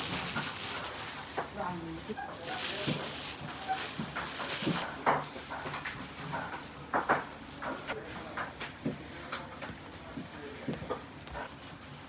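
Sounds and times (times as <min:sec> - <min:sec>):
faint voices: 0:00.0 - 0:04.8.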